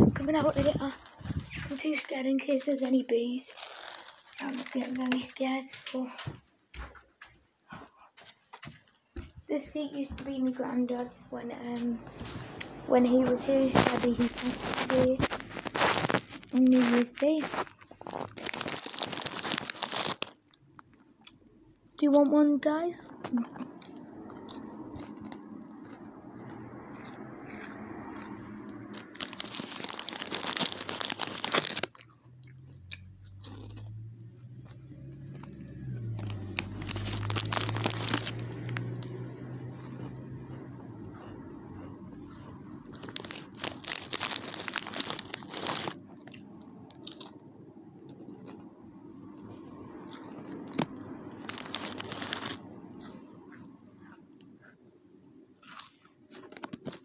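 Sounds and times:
packet rustling: 0:00.0 - 0:06.2, 0:12.1 - 0:20.7, 0:28.8 - 0:32.1, 0:35.5 - 0:40.2, 0:42.0 - 0:47.5, 0:50.2 - 0:53.6, 0:55.7 - 0:57.0
crisps crunching and chewing: 0:00.1 - 0:06.4, 0:09.7 - 0:57.0.

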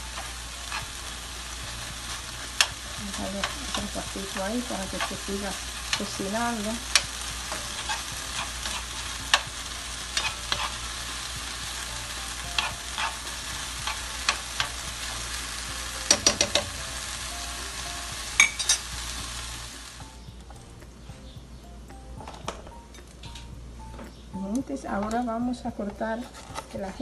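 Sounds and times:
food sizzling in a pan: 0:00.0 - 0:21.0
spoon scraping a pan: 0:06.8 - 0:11.4, 0:12.5 - 0:15.3, 0:25.9 - 0:27.0.

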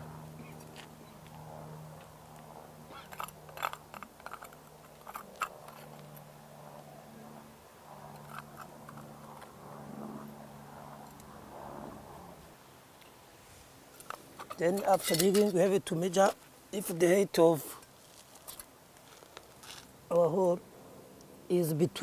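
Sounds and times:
steady low hum: 0:00.0 - 0:22.0
metal scoop scraping soil: 0:14.0 - 0:15.6.

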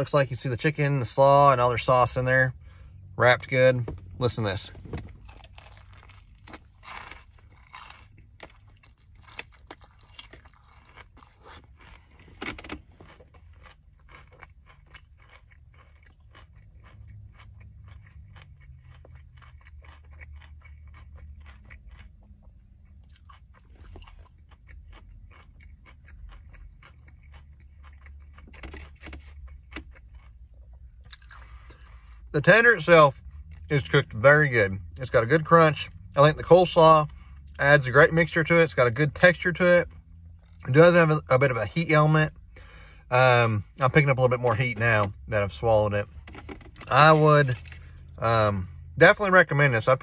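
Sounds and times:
crunchy chewing: 0:05.1 - 0:32.0.

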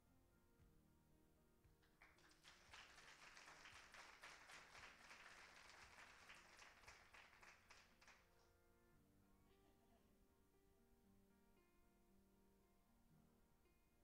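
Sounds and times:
audience applause: 0:01.9 - 0:08.3.

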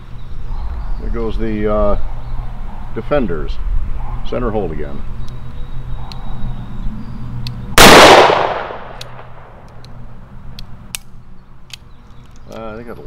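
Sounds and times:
revolver gunshot: 0:07.8 - 0:09.5.

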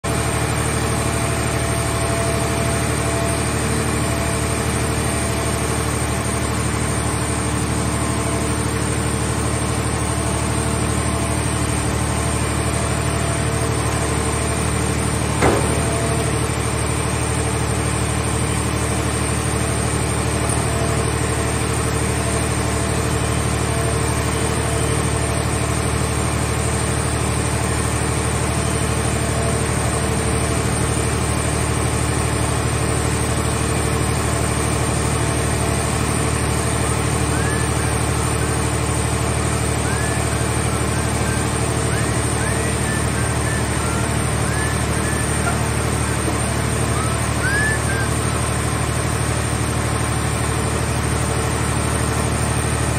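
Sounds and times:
heavy machinery running: 0:00.1 - 0:52.9
car shell banging into steel box: 0:15.4 - 0:16.0.

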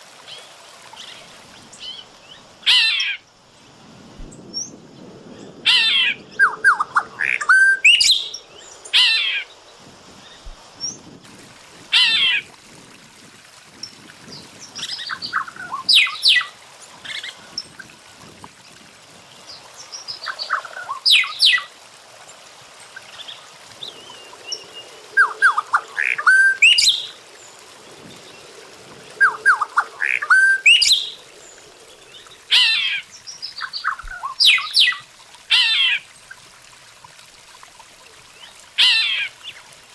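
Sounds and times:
bird singing whistled notes: 0:06.4 - 0:08.4.

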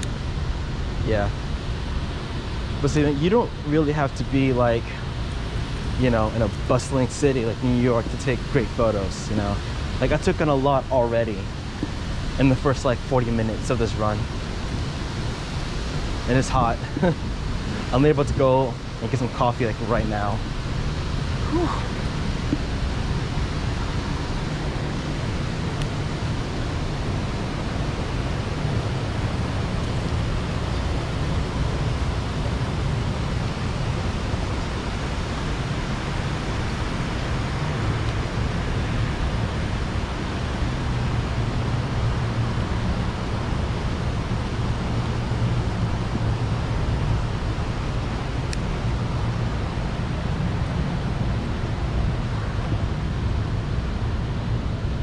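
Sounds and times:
city background rush: 0:00.0 - 0:55.0.

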